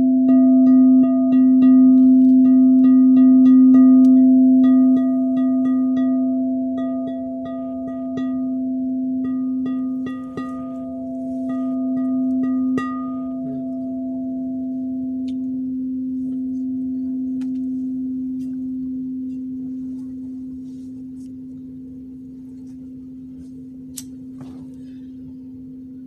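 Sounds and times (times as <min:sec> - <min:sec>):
singing bowl ringing: 0:00.0 - 0:26.0.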